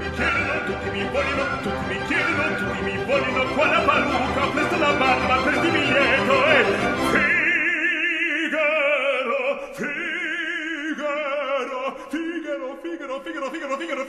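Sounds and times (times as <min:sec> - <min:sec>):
orchestra playing: 0:00.0 - 0:07.7
opera singer with vibrato: 0:00.0 - 0:14.0.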